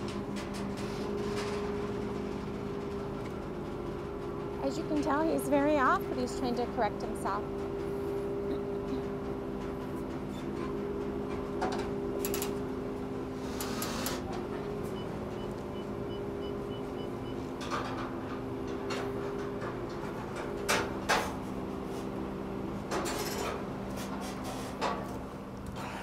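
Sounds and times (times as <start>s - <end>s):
clanks and knocks: 8.8s - 12.6s, 17.6s - 21.4s.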